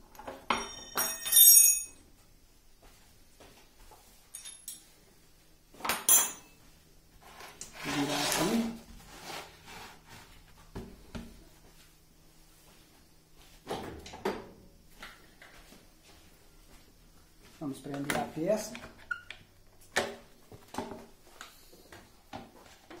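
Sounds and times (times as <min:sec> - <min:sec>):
wood scraping on wood: 0:07.2 - 0:10.5.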